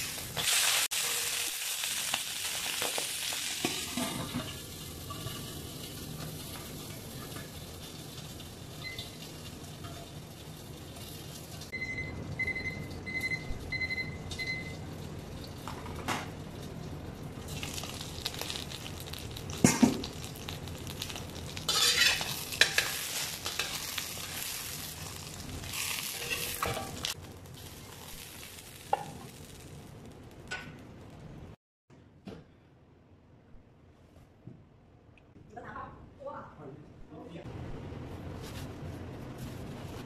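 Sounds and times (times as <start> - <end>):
fish sizzling in a wok: 0.0 - 11.7, 17.4 - 30.3
kitchen timer beeps: 8.8 - 9.2, 11.7 - 14.8
metal knocks and scraping on pan: 21.7 - 23.8.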